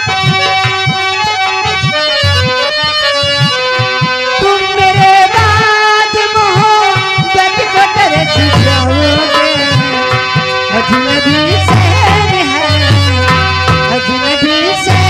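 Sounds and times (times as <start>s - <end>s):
dholak drum rhythm: 0.0s - 15.0s
harmonium chords: 0.0s - 15.0s
person singing: 4.4s - 13.3s, 13.9s - 15.0s.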